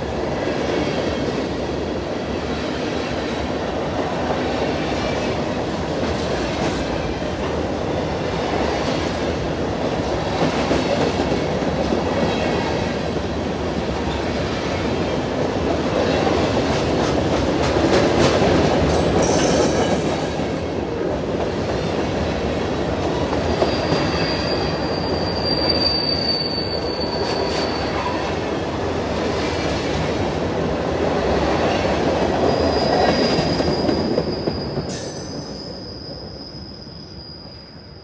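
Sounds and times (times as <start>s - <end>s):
freight train wheels rumbling: 0.0s - 38.0s
high wheel squeal: 23.6s - 28.4s, 32.4s - 38.0s.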